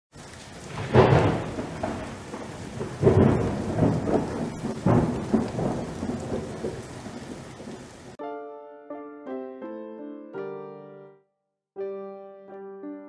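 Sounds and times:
rain hiss: 0.1 - 8.2
thunder rumbling: 0.3 - 8.2
thunder cracks: 0.6 - 8.2
piano notes: 8.2 - 13.0.

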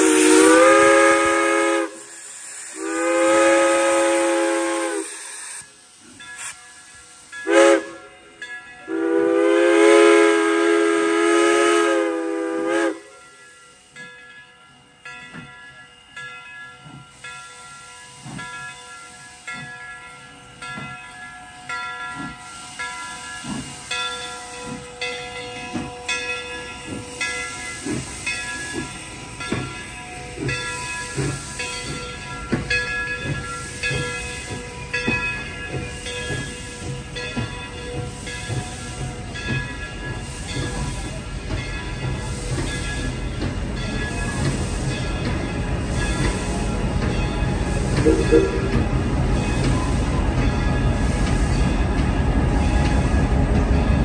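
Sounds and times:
steam whistle blasts: 0.0 - 5.7, 7.4 - 8.1, 8.9 - 13.1, 47.8 - 50.2
hissing steam: 0.0 - 54.0
rhythmic locomotive chuffing: 0.0 - 54.0
rumble of rolling coaches: 6.8 - 54.0.

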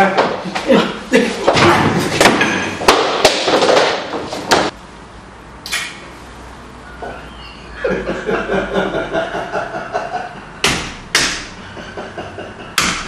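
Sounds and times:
sharp hand slaps: 10.6 - 11.5, 12.8 - 13.0.

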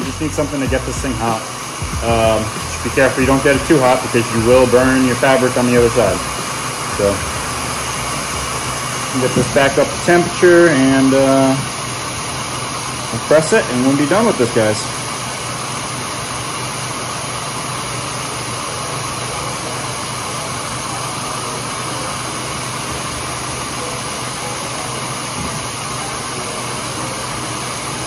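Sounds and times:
heat gun blowing air: 0.0 - 18.4.

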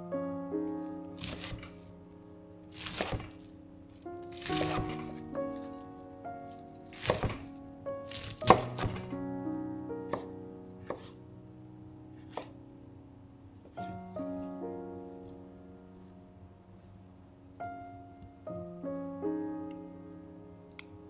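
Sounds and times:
piano music: 0.0 - 21.0
knife cutting on cutting board: 2.8 - 3.3, 4.3 - 5.0, 6.9 - 7.4, 10.9 - 11.2.

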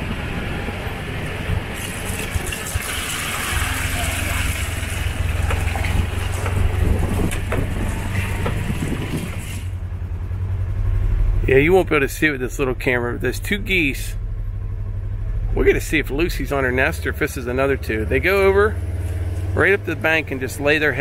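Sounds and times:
tyres rumbling on gravel: 0.0 - 21.0
vehicle engine hum: 0.0 - 21.0
knocks from bumps: 5.2 - 9.7.

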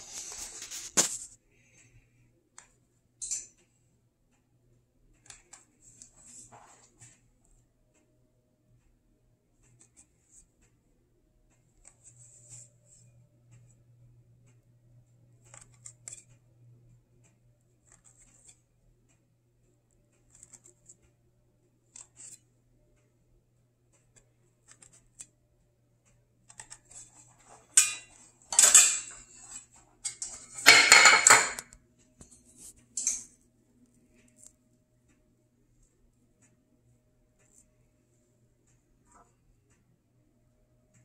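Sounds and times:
metal muffin tin clattering: 26.9 - 31.7, 32.9 - 33.4.

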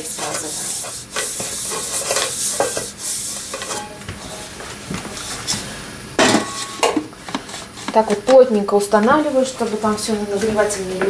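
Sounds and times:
oil rubbing inside cooking bowl: 0.0 - 5.6.

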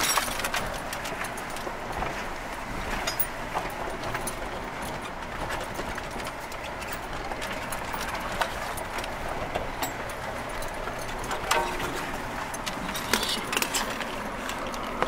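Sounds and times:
vehicle driving on dirt trail: 0.0 - 15.0
vehicle knocks and clatters: 3.0 - 15.0.

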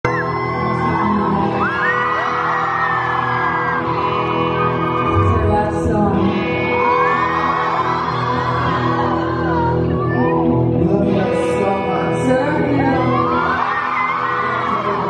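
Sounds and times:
electric guitar: 0.0 - 15.0
live band playing: 3.6 - 15.0.

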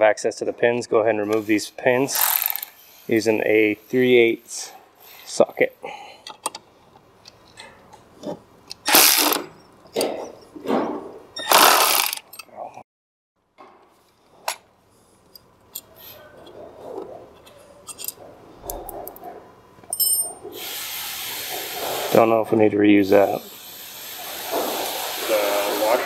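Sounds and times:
cordless ratchet running: 2.1 - 2.8, 11.5 - 12.2.

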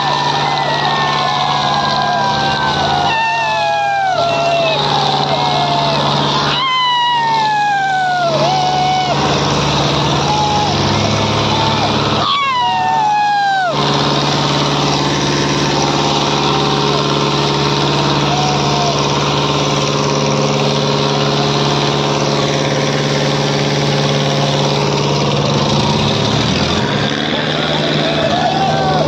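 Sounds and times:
long falling shout: 0.0 - 20.0, 27.4 - 29.0
crowd voices shouting: 0.0 - 29.0
tractor diesel engine running: 0.0 - 29.0.

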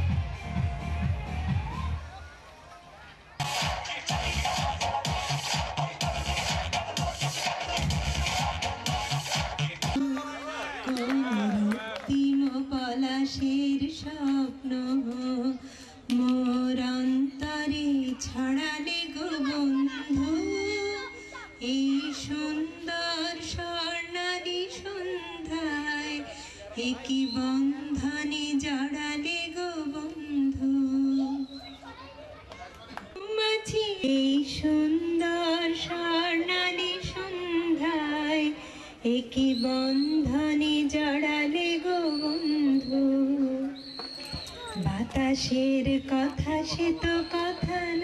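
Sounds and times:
woman singing into microphone: 10.9 - 31.4, 33.2 - 43.8, 44.8 - 48.0
singer breathing: 15.6 - 16.1, 26.3 - 26.8, 38.6 - 39.1.

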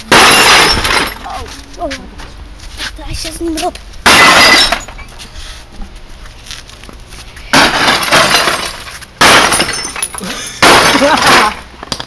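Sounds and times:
sledgehammer smashing television: 0.1 - 1.2, 4.0 - 5.0, 7.5 - 11.6
broken pieces rattling: 4.0 - 5.0, 7.5 - 12.0.

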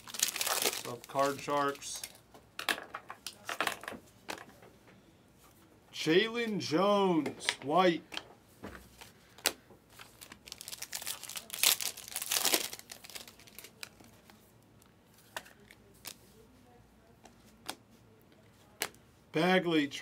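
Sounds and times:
foil pack tearing and crinkling: 0.0 - 2.1, 10.1 - 14.0.

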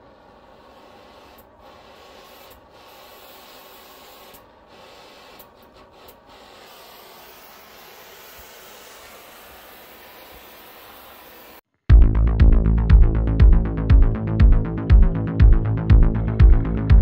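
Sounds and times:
torch flame hissing: 0.0 - 11.6.

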